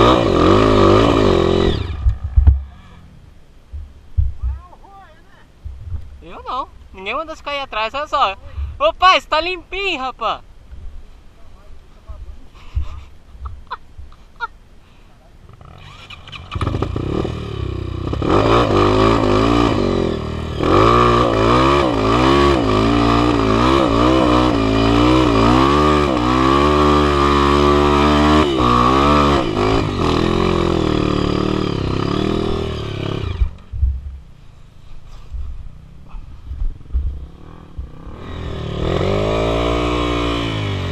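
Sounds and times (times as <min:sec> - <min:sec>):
dirt bike engine revving: 0:00.0 - 0:03.0, 0:15.6 - 0:33.7, 0:36.8 - 0:40.9.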